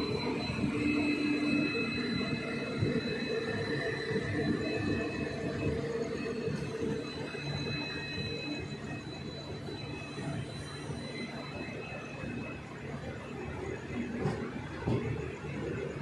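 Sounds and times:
thin high whine: 0.0s - 14.7s
train wheels rumbling on rail: 13.9s - 16.0s.

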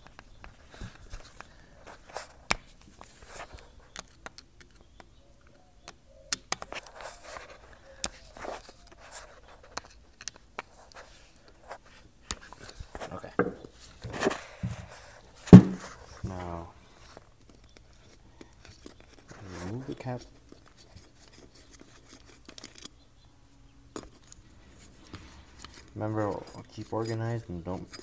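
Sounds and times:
screwdriver clicking and scraping: 21.2s - 22.9s.

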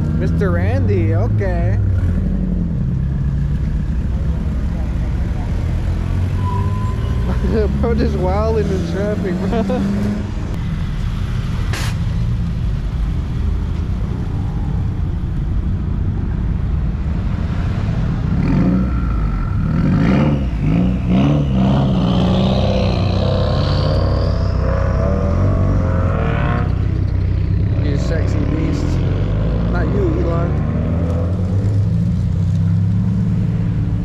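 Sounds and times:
car engines idling: 0.0s - 6.3s, 6.9s - 17.4s, 18.0s - 30.5s
rising whine: 20.5s - 27.6s.

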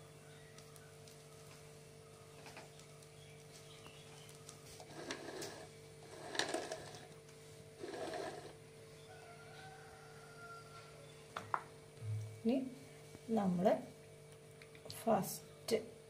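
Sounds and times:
steady low hum: 9.8s - 16.0s.

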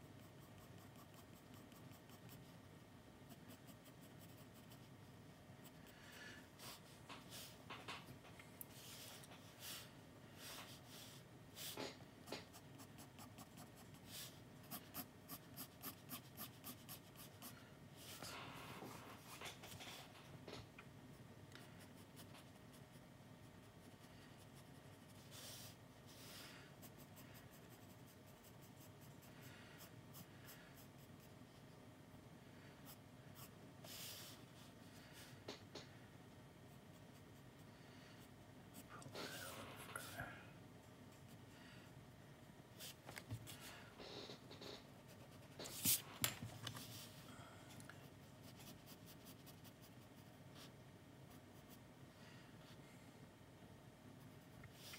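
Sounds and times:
pencil scratching on paper: 0.0s - 2.5s, 3.2s - 4.9s, 10.5s - 17.6s, 48.4s - 50.7s.

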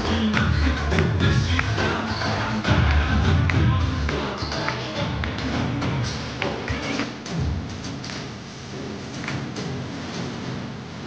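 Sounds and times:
dance music with heavy bass: 0.0s - 8.4s.

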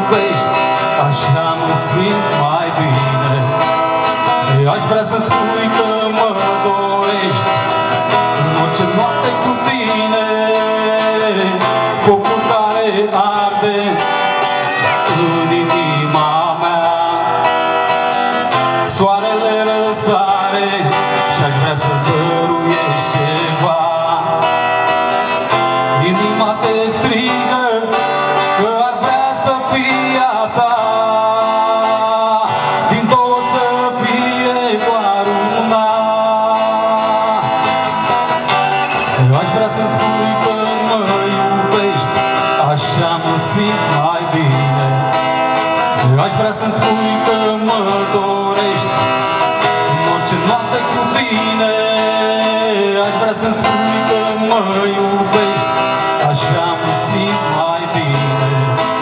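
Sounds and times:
acoustic guitar strumming: 0.0s - 59.0s
man singing into a microphone: 0.0s - 59.0s.

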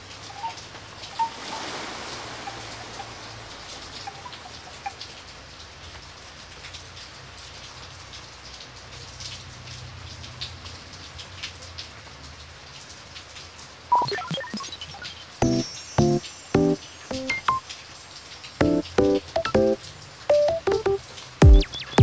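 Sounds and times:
steady rain: 0.0s - 22.0s
electronic music with synth blips: 13.9s - 17.6s, 18.6s - 22.0s.

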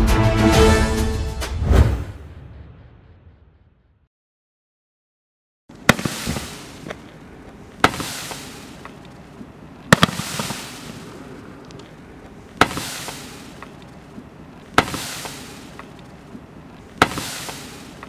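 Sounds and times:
fireworks cake sharp reports: 5.8s - 7.0s, 7.8s - 9.0s, 9.9s - 11.2s
small firework pops: 5.8s - 7.2s, 7.8s - 9.2s, 9.9s - 11.1s, 12.6s - 13.9s, 14.7s - 16.2s, 17.0s - 18.0s.

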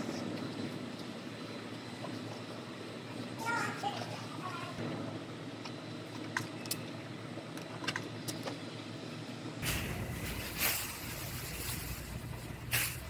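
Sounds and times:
shop hum: 0.0s - 13.0s
plastic sheeting rustling: 9.6s - 13.0s.

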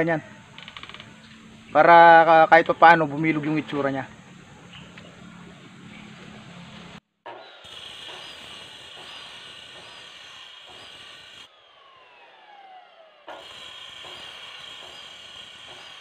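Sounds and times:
cut-off saw whining: 5.4s - 16.0s.

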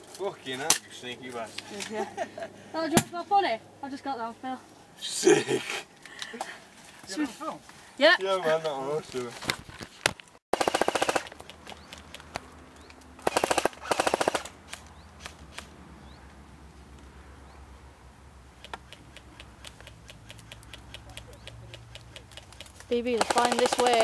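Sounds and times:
airsoft gun bursts: 10.5s - 11.4s, 13.2s - 14.6s, 23.0s - 24.0s.

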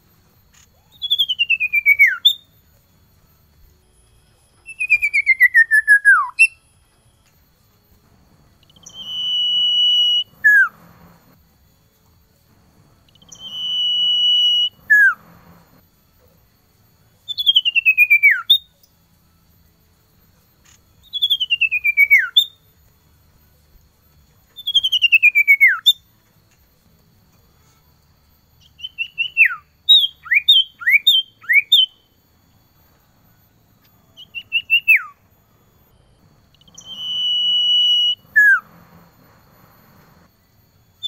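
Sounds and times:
bird singing whistled notes: 0.6s - 2.7s, 3.8s - 7.3s, 8.2s - 11.4s, 12.9s - 15.8s, 17.2s - 19.0s, 21.0s - 22.8s, 24.4s - 26.1s, 28.6s - 32.8s, 34.0s - 35.3s, 35.9s - 41.0s.

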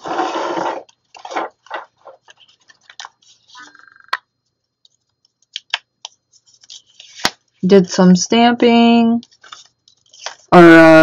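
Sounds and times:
paper pages rustling: 0.0s - 3.7s, 4.8s - 7.6s, 9.2s - 10.6s.

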